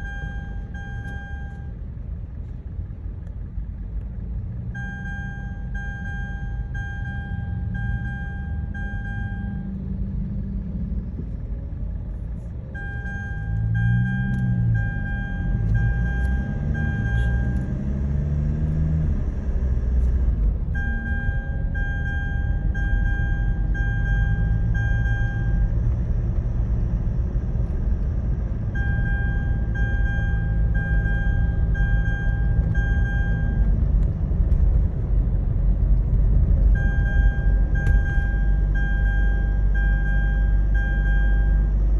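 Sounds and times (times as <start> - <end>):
seat belt reminder chime beeping: 0.0 - 1.7, 4.8 - 9.8, 12.8 - 17.7, 20.8 - 25.6, 28.8 - 33.7, 36.7 - 41.7
car engine and road noise: 0.0 - 41.9.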